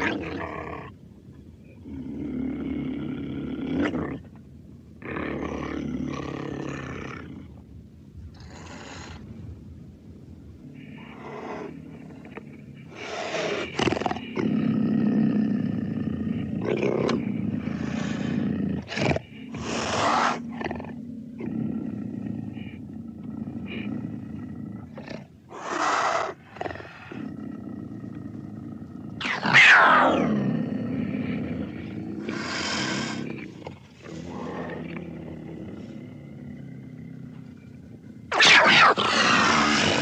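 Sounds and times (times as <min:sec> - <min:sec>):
big cat growling: 0:00.0 - 0:01.0, 0:01.7 - 0:04.3, 0:10.6 - 0:40.0
big cat roar: 0:00.0 - 0:01.0, 0:01.7 - 0:04.3, 0:05.0 - 0:07.5, 0:10.6 - 0:40.0
snarling calls: 0:16.6 - 0:24.1, 0:25.0 - 0:37.6, 0:38.3 - 0:40.0.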